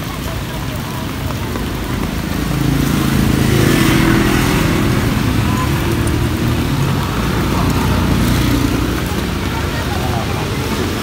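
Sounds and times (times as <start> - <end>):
road traffic: 0.0 - 11.0
vehicle engine humming: 0.0 - 11.0.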